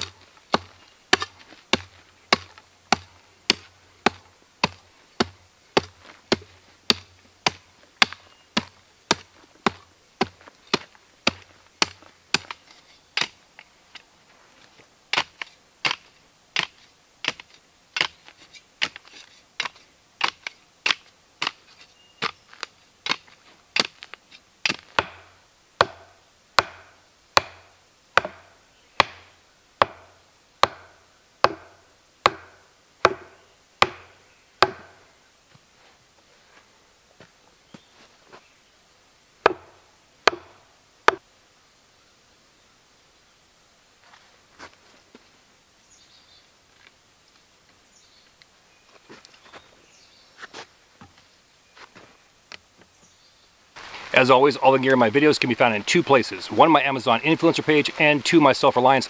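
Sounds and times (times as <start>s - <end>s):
wooden baton driving wooden stake: 0.0s - 14.0s, 16.6s - 35.0s, 39.4s - 41.2s
hand shovel chopping dry dirt: 0.0s - 14.1s, 15.1s - 35.0s, 39.4s - 41.2s.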